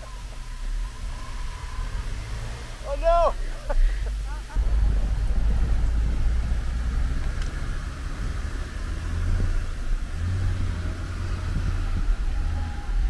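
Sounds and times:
engines running under load: 0.0s - 13.0s.

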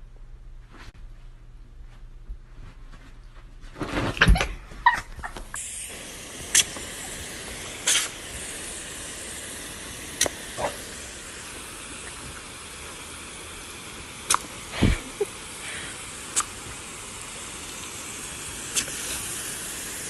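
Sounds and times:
garden hose spraying water: 4.8s - 20.0s.

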